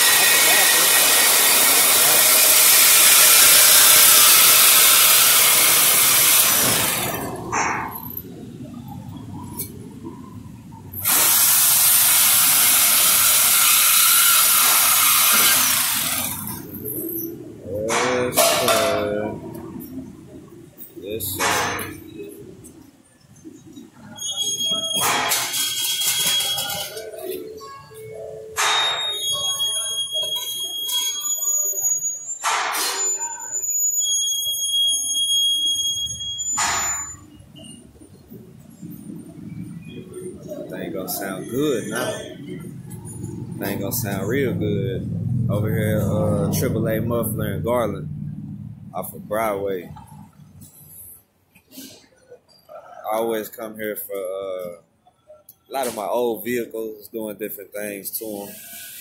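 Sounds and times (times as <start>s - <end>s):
power cutting tool hissing: 0.0s - 7.4s, 11.0s - 16.6s.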